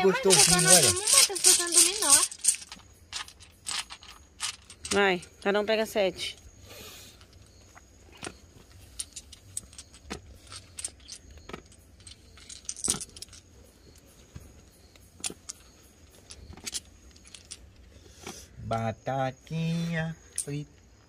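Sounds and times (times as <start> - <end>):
domino tiles clicking: 0.0 - 5.0.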